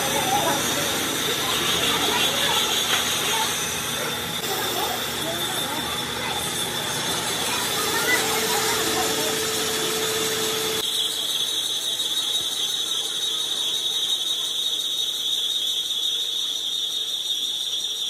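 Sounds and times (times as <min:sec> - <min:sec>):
metal lathe running: 0:00.0 - 0:13.8
cutting tool squealing: 0:00.0 - 0:18.0.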